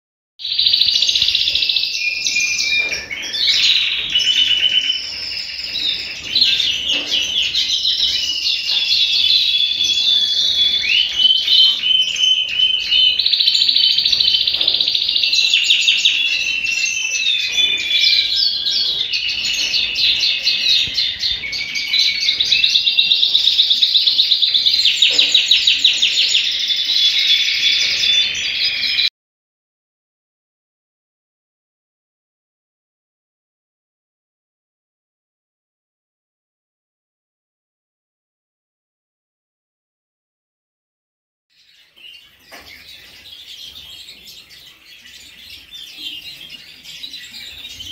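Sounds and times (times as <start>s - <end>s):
canary singing trills: 0.4s - 29.1s, 41.6s - 47.9s.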